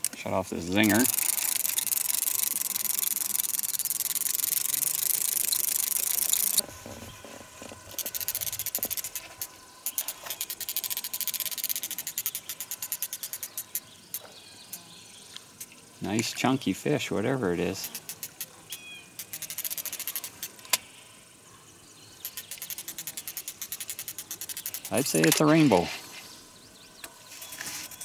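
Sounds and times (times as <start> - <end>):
fishing reel clicking: 0.0 - 6.6, 7.9 - 14.8, 17.6 - 20.8, 22.2 - 25.8
steady hiss: 0.0 - 28.0.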